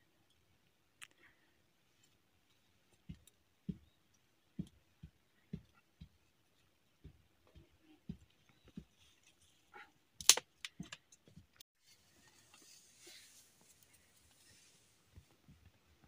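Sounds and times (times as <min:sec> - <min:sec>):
dry twigs knocking and clicking: 0:10.2 - 0:11.5.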